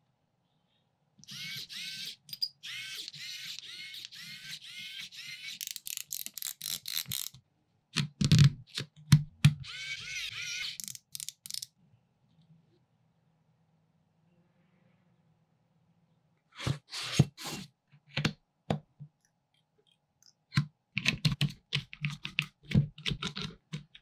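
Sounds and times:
electric screwdriver whirring: 1.2s - 2.1s.

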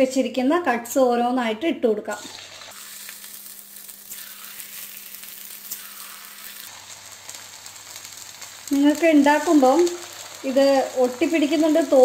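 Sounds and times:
dough sizzling in hot oil: 2.1s - 12.0s
small crackles: 2.6s - 12.0s.

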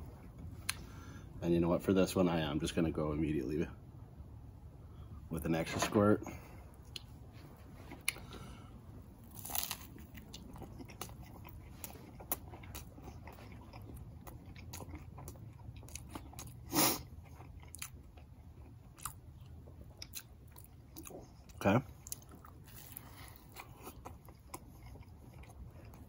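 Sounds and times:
chewing crunchy toasted bread: 6.7s - 26.0s.

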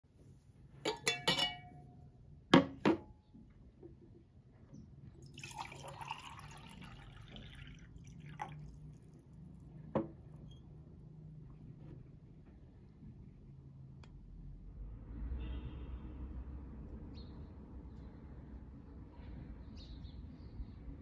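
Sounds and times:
glass clinking: 0.9s - 2.0s, 5.4s - 7.4s
water pouring into glass: 5.2s - 9.6s.

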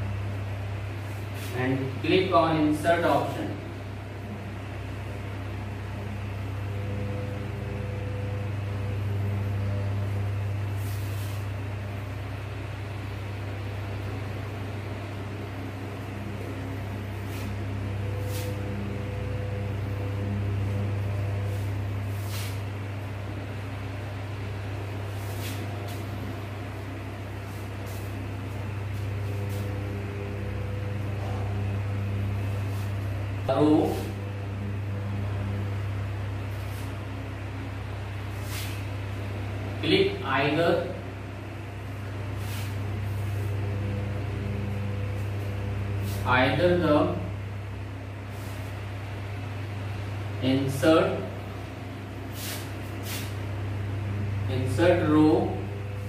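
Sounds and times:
low mains hum: 0.0s - 56.0s
duster wiping whiteboard: 1.0s - 1.9s, 10.7s - 11.6s, 16.5s - 22.8s, 25.1s - 34.2s, 36.5s - 37.1s, 38.2s - 39.3s, 42.3s - 47.2s, 48.2s - 48.9s, 52.2s - 53.5s
marker scraping whiteboard: 25.2s - 26.1s
even hiss: 52.3s - 53.4s.

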